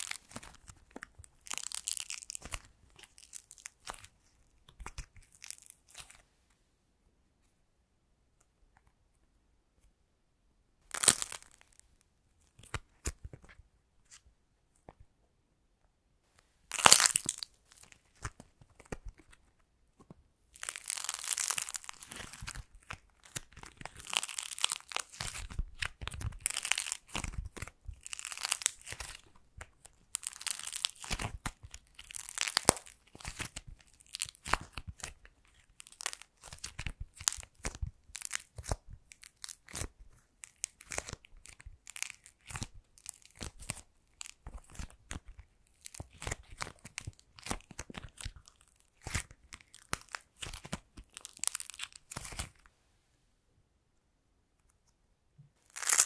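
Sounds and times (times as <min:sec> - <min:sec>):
clay crackling and tearing: 0:00.0 - 0:06.2, 0:10.8 - 0:15.1, 0:16.7 - 0:52.7, 0:55.6 - 0:56.0
dried clay cracking: 0:00.0 - 0:06.2, 0:10.8 - 0:11.9, 0:16.7 - 0:52.7, 0:55.6 - 0:56.0.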